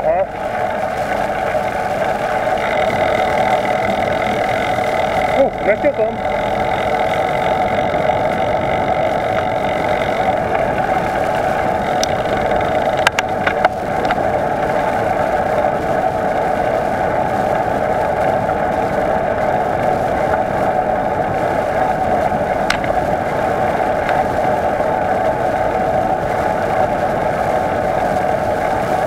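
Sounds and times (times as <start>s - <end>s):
wind on microphone: 0.0s - 29.0s
bicycle tyres rolling: 0.3s - 29.0s
sharp clicks or rattles: 2.4s - 14.2s, 22.6s - 24.4s.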